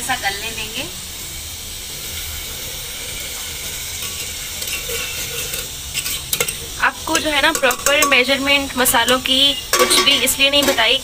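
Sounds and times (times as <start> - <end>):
food sizzling in a pot: 0.0 - 11.0
ladle clicking against pot: 7.2 - 8.3.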